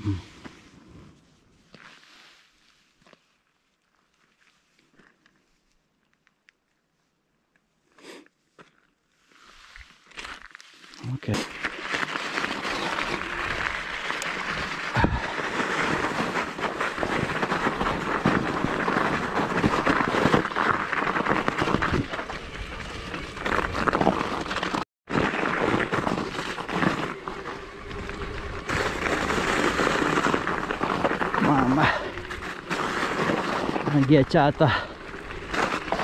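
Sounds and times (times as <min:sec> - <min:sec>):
bike tyres crunching on snow: 0:00.0 - 0:07.2, 0:07.8 - 0:36.0
bike rattling over bumps: 0:11.5 - 0:36.0.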